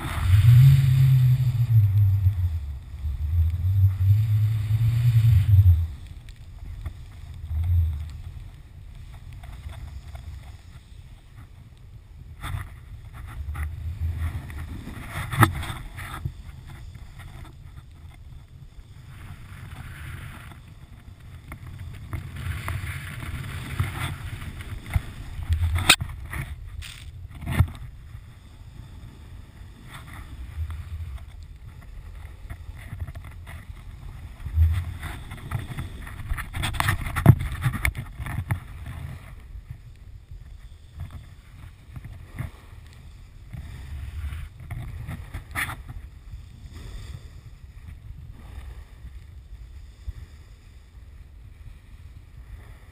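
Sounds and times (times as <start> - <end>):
snowboard swishing through powder: 0.0 - 11.1
wind on microphone: 0.0 - 52.9.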